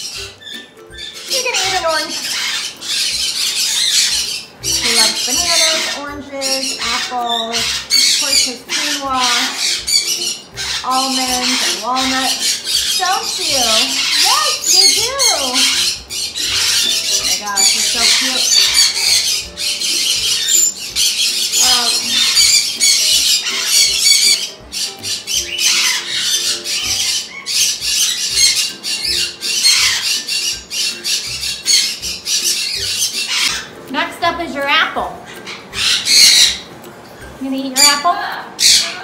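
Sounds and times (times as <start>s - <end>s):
macaw squawking: 0.0s - 39.0s.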